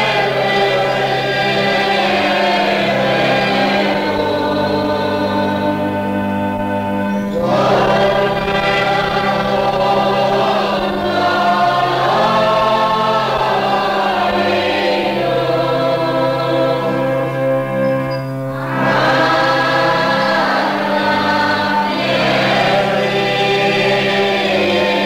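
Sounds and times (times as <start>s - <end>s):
choir singing a slow hymn: 0.0s - 25.0s
sustained low chords: 0.0s - 25.0s.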